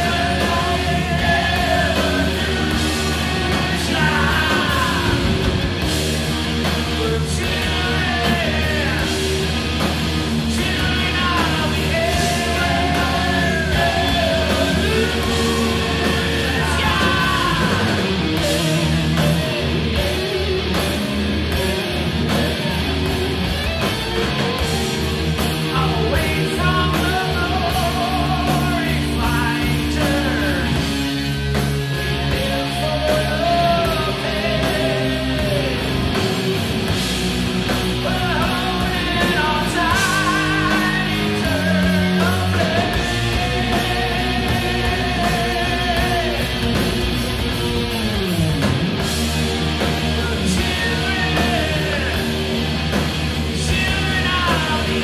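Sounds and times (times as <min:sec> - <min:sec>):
lead singer vocals: 0:00.0 - 0:05.7, 0:06.8 - 0:09.4, 0:10.5 - 0:22.7, 0:25.7 - 0:30.9, 0:32.1 - 0:36.6, 0:38.0 - 0:46.8, 0:50.2 - 0:52.5, 0:53.6 - 0:55.0
hard rock band playing: 0:00.0 - 0:55.0.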